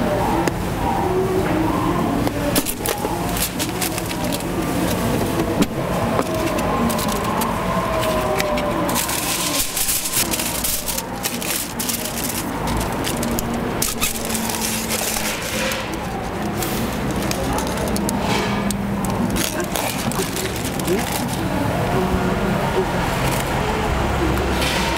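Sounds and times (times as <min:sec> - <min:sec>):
street market noise: 0:00.0 - 0:24.9
crackles and clicks: 0:02.2 - 0:21.5.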